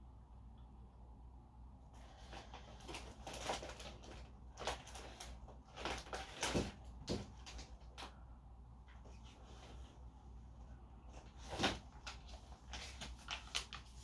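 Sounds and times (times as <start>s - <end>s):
rummaging rustles and knocks: 2.0s - 8.0s, 11.1s - 13.7s.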